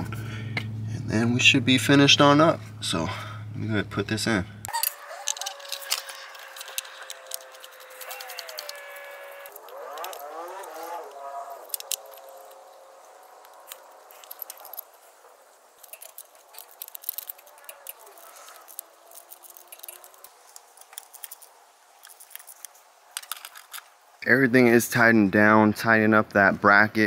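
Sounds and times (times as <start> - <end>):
metallic clicks of hand tools: 9.5 - 10.9, 11.7 - 12.6.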